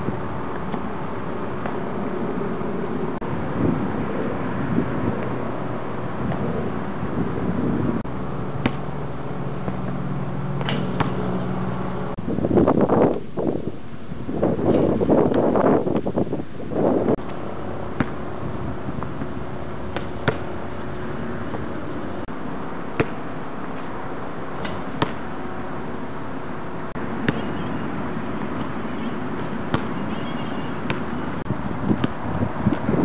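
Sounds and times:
basketball bouncing on concrete: 0:08.6 - 0:08.9, 0:10.6 - 0:11.4, 0:14.7 - 0:16.2, 0:18.0 - 0:18.3, 0:19.9 - 0:20.6, 0:23.0 - 0:23.2, 0:24.6 - 0:25.3, 0:27.2 - 0:27.7, 0:28.5 - 0:31.2, 0:31.9 - 0:33.0.

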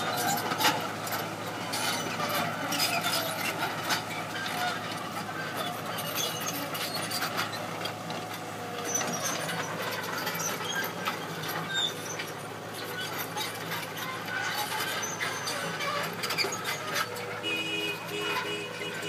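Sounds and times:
excavator diesel engine running: 0:00.0 - 0:19.0
short high squeaks and clicks: 0:05.5 - 0:07.7, 0:08.3 - 0:17.3.

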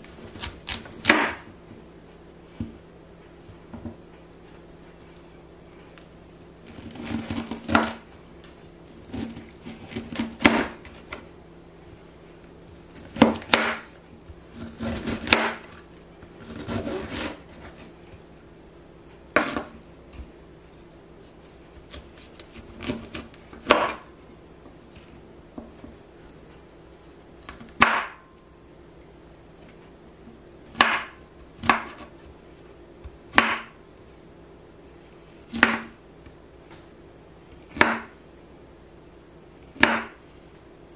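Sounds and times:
knife chopping on wooden board: 0:00.3 - 0:01.5, 0:06.8 - 0:08.0, 0:09.1 - 0:11.2, 0:13.0 - 0:13.9, 0:14.7 - 0:15.8, 0:19.4 - 0:19.8, 0:21.8 - 0:24.1, 0:27.7 - 0:28.3, 0:30.7 - 0:32.1, 0:33.3 - 0:33.8, 0:35.5 - 0:36.0, 0:37.7 - 0:38.2, 0:39.8 - 0:40.2.

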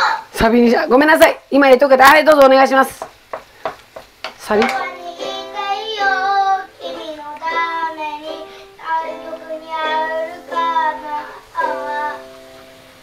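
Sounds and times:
child singing: 0:04.6 - 0:12.5.

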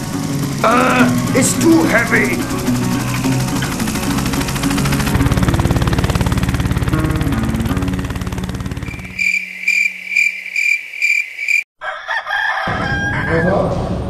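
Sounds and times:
music with fast pulsing beat: 0:00.0 - 0:06.4
cricket chirping: 0:08.9 - 0:11.7
rooster crowing: 0:09.0 - 0:13.6.

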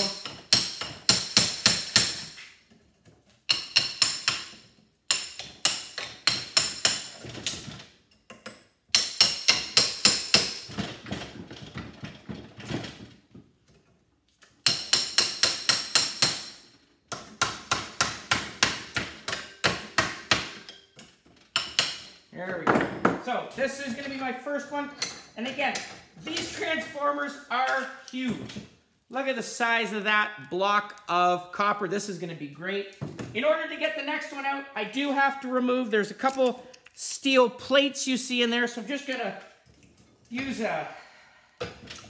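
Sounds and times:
hammer striking metal punch: 0:14.6 - 0:16.6.

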